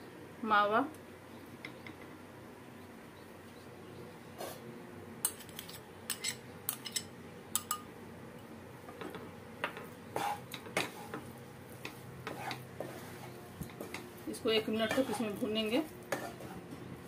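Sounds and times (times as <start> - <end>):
faint steady hum: 0.0 - 17.0
spoon scraping and tapping bowl: 5.3 - 7.9
wooden spatula mixing in pan: 9.7 - 16.8.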